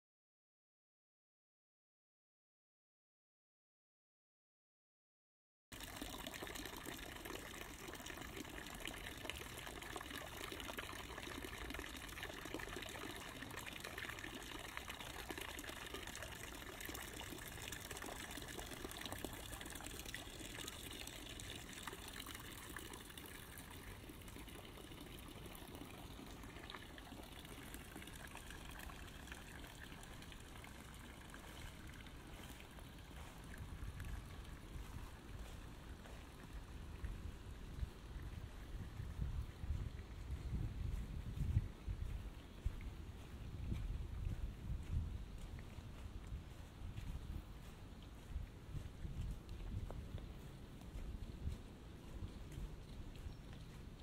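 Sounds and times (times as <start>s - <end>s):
water pouring into trough: 5.7s - 34.6s.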